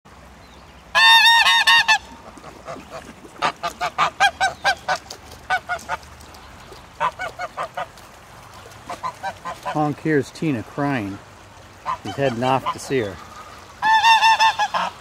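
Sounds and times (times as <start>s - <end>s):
goose honking: 1.0s - 2.0s, 11.8s - 15.0s
distant goose crying out: 11.9s - 15.0s.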